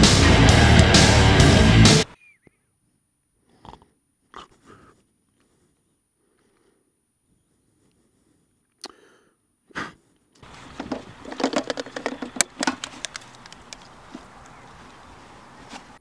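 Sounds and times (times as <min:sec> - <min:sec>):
camera handling rustling and clicks: 0:10.7 - 0:14.6.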